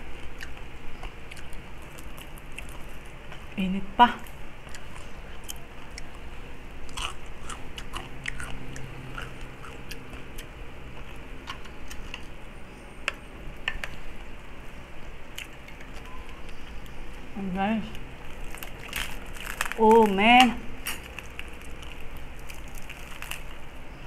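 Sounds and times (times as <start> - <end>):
crunchy chewing: 0.1 - 3.2, 4.2 - 12.4, 17.9 - 24.0.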